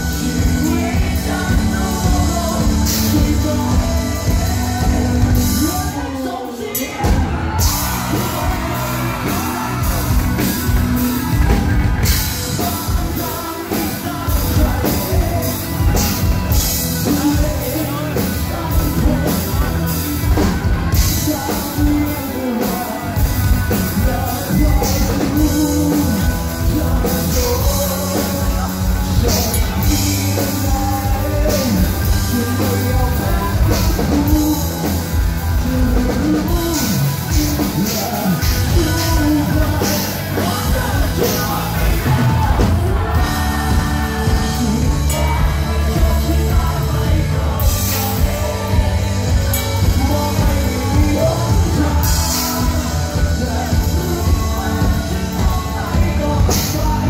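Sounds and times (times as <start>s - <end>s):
bass guitar: 0.0s - 57.0s
drums: 0.0s - 57.0s
electric guitars: 0.0s - 57.0s
man singing: 0.0s - 57.0s.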